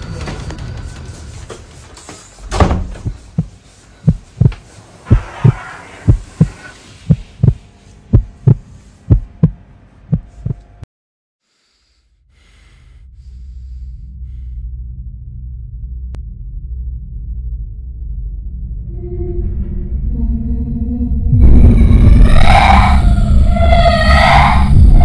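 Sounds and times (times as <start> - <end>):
heartbeat thumps: 2.8 - 10.6
low drone: 11.6 - 25.0.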